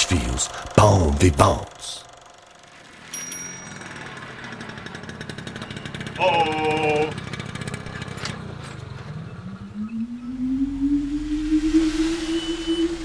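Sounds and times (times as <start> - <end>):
scooter engine buzzy putter: 0.0 - 9.7
rising whine: 9.0 - 13.0.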